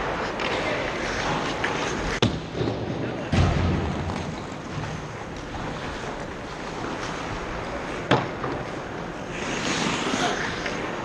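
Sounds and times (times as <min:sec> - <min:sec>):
skate blades carving ice: 0:00.0 - 0:02.8, 0:03.9 - 0:11.0
skates scraping ice: 0:00.0 - 0:11.0
puck impact: 0:00.2 - 0:07.1, 0:08.0 - 0:08.7.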